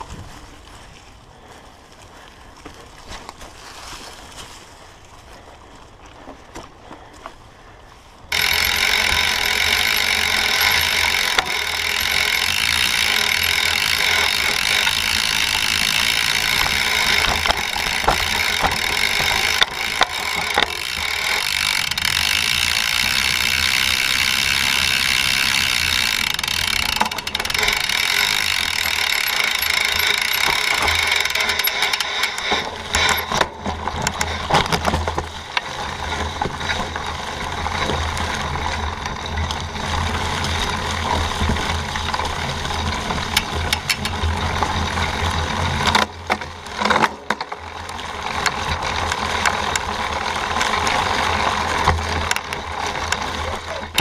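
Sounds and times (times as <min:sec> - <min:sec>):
bike chain and frame rattle: 0:00.0 - 0:54.0
bike tyres crunching through leaves: 0:00.0 - 0:54.0
scattered clicks: 0:08.3 - 0:39.7, 0:43.0 - 0:44.9, 0:45.8 - 0:54.0.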